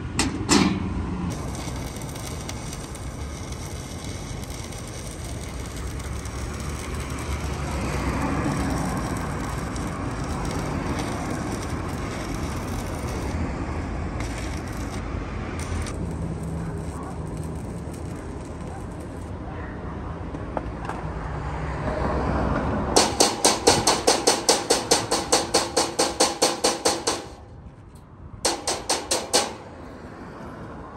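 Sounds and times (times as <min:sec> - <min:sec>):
welding arc crackling hiss: 0:01.3 - 0:13.4, 0:14.2 - 0:15.0, 0:15.6 - 0:19.3.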